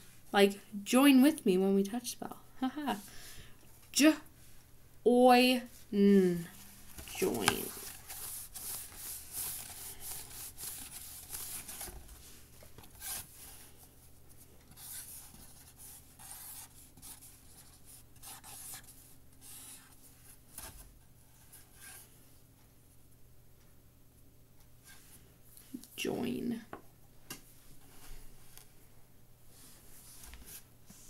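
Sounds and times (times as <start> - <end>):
faint steady hum: 0.0 - 31.0
pen scratching on paper: 14.8 - 19.9.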